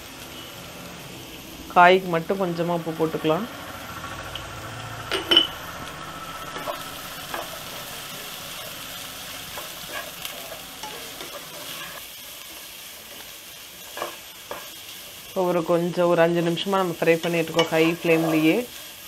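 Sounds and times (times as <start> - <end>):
vegetables sizzling in a pan: 0.0 - 19.0
spatula stirring and scraping: 5.3 - 15.2, 17.0 - 19.0.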